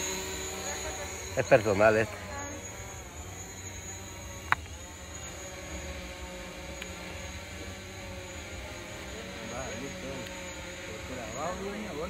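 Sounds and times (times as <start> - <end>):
drone propeller hum: 0.0 - 12.0.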